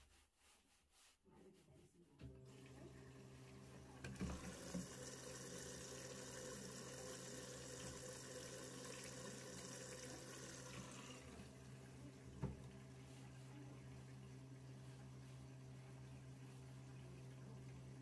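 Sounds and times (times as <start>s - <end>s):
washing machine hum: 0.1s - 18.0s
water running in: 2.4s - 18.0s.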